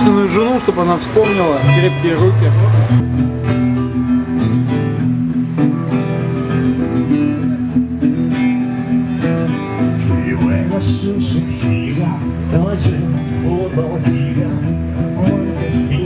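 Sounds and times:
acoustic guitars strummed and picked: 0.0 - 16.0
voices singing: 9.8 - 16.0.

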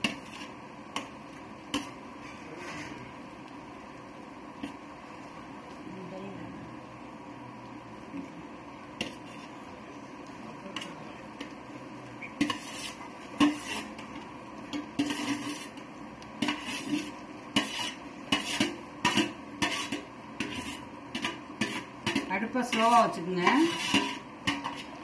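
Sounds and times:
metal bowl and pan clinking: 12.2 - 15.7, 16.4 - 24.9.

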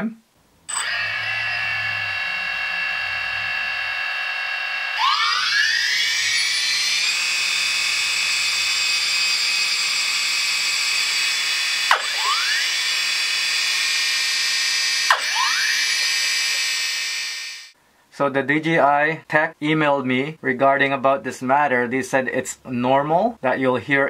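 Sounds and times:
high-pitched motor whine: 0.7 - 17.8.

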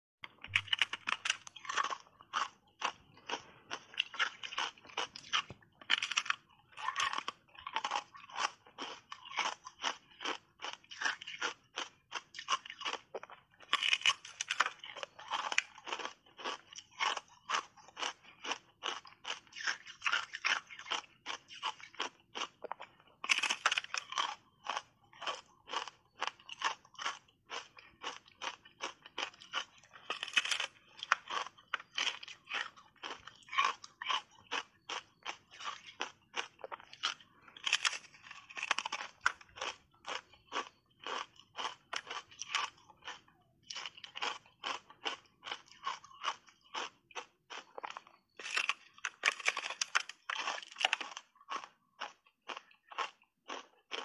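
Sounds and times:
crisp crunching of ice: 0.2 - 54.0.

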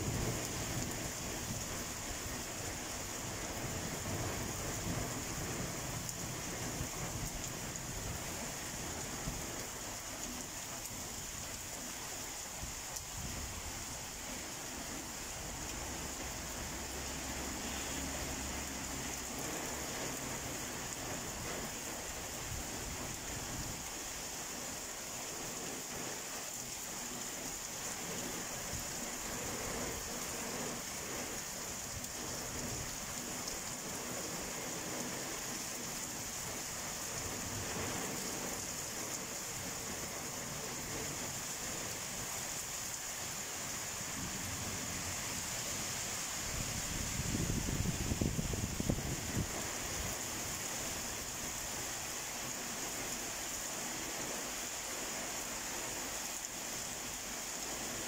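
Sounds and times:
heavy rain pouring: 0.0 - 58.0
low rumble of thunder: 46.6 - 50.2.

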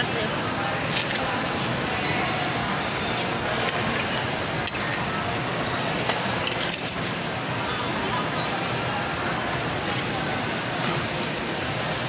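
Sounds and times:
murmur of crowd chatter: 0.0 - 12.0
tableware clinking: 3.2 - 7.3.

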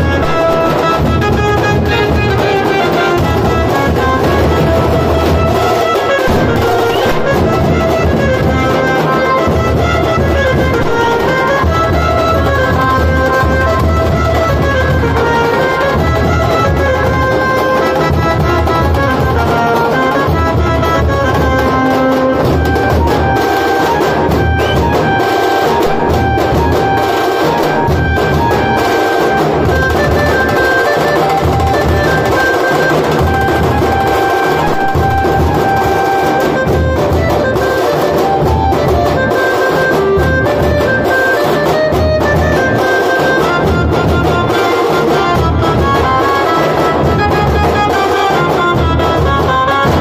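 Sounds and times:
melody line: 0.0 - 14.1, 16.7 - 48.9
bass drums beaten: 6.3 - 14.9, 25.8 - 30.5.

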